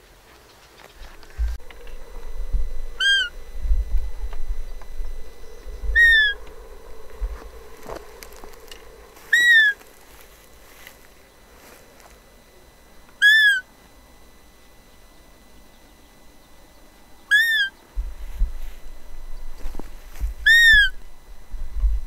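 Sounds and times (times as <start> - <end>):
low rumble: 1.0 - 13.0, 18.0 - 22.0
deer call whistling peep: 1.7 - 10.7, 13.2 - 13.7, 17.3 - 17.8, 20.4 - 21.0.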